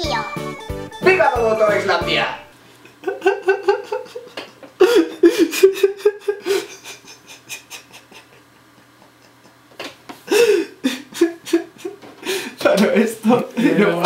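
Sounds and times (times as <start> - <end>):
man laughing: 2.8 - 12.4.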